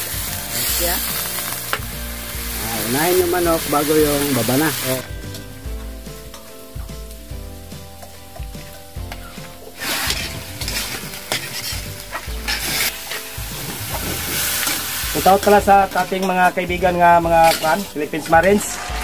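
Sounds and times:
chicken sizzling in a wok: 0.0s - 19.0s
metal spatula scraping: 9.3s - 16.6s, 17.3s - 19.0s.

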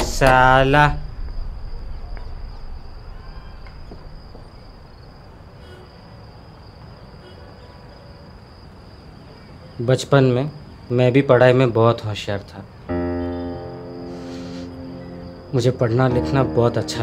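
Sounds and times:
low background rumble: 0.0s - 5.6s
crickets trilling: 0.0s - 17.0s.

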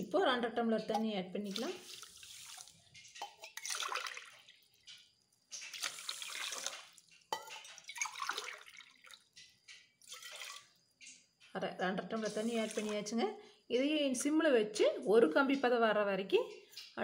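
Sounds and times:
water pouring into steel pot: 0.9s - 11.2s, 12.2s - 13.2s.

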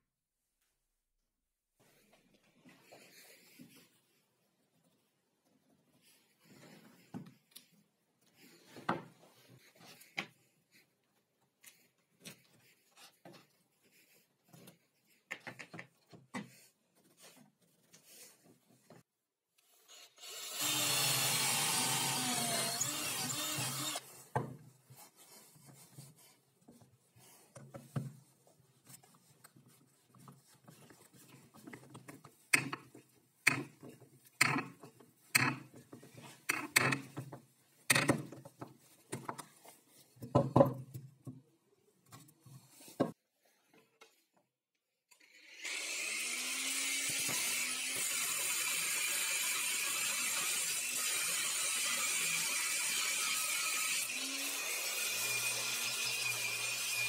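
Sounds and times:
cordless drill boring into wood: 19.8s - 24.0s, 45.2s - 57.0s
angle grinder cutting steel: 20.1s - 24.0s, 45.5s - 57.0s
sharp clicks and knocks: 31.6s - 39.6s.

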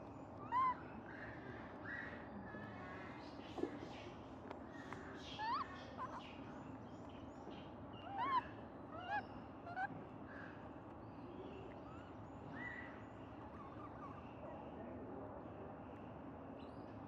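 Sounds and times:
monkey coo calls: 0.4s - 0.9s, 5.4s - 6.3s, 8.0s - 10.0s, 13.4s - 14.2s.

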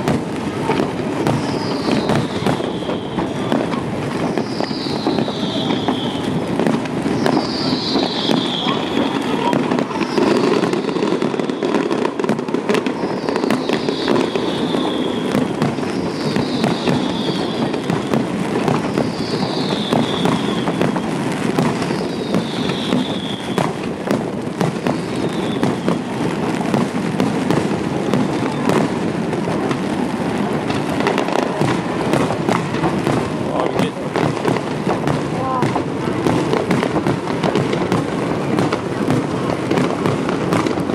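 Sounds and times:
fireworks bangs and crackling: 0.0s - 40.9s
high falling whistle: 4.4s - 6.3s, 7.2s - 9.0s.

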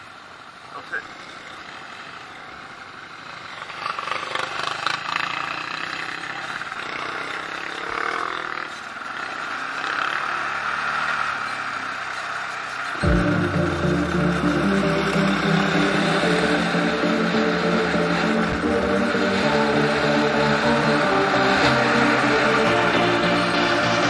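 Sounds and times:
atv engine running: 0.0s - 24.0s
music: 13.0s - 24.0s.

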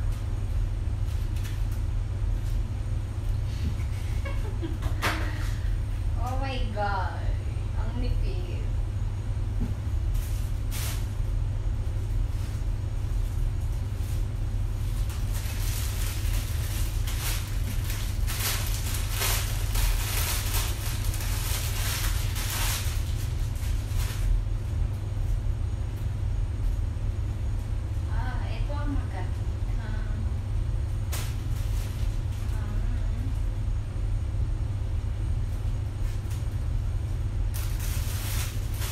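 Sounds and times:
steady low hum: 0.0s - 38.9s
fabric and plastic rustling: 1.0s - 6.8s, 9.6s - 11.3s, 12.0s - 24.9s, 30.9s - 33.4s, 37.5s - 38.9s.

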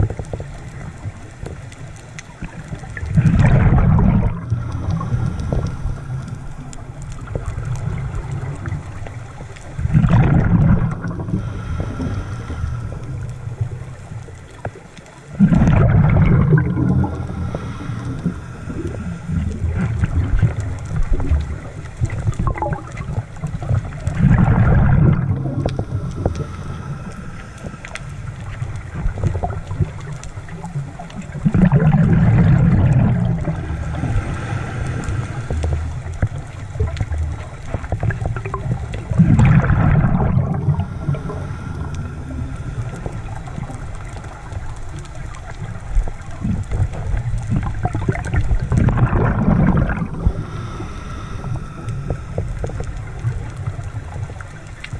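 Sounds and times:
diver exhaled bubbles gurgling: 0.0s - 54.9s
muffled underwater noise: 0.0s - 54.9s.

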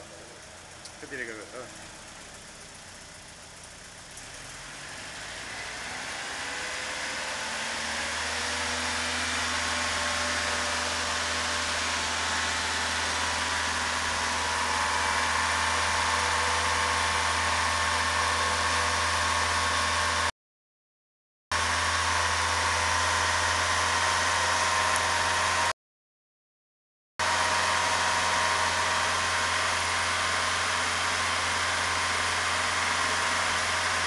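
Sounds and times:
car engine running: 0.0s - 20.3s, 27.2s - 34.0s.

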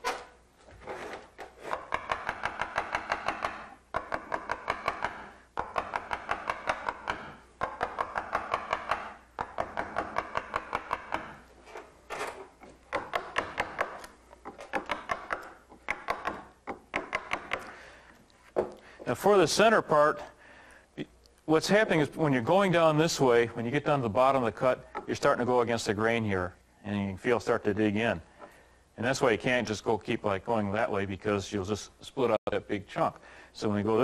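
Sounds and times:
mallet tapping carving gouge: 1.6s - 11.4s, 12.6s - 17.7s.

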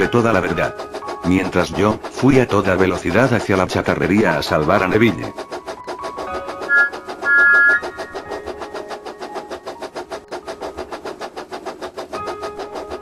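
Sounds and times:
steam locomotive chuffing: 0.0s - 13.0s
two-note train whistle: 6.4s - 8.4s.

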